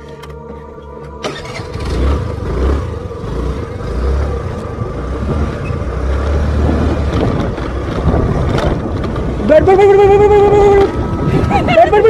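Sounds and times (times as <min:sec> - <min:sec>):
motor scooter engine: 0:01.0 - 0:12.0
wind buffeting microphone: 0:04.5 - 0:12.0.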